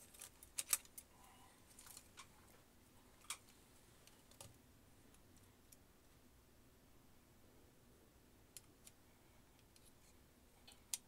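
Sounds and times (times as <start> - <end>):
small plastic parts clicking: 0.0 - 1.1.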